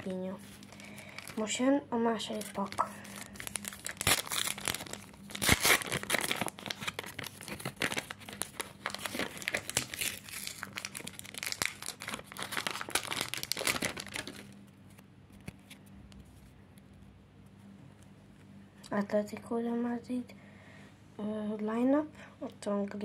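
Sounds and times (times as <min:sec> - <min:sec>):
card pack wrapper crinkling: 0:00.0 - 0:01.6, 0:02.2 - 0:14.7.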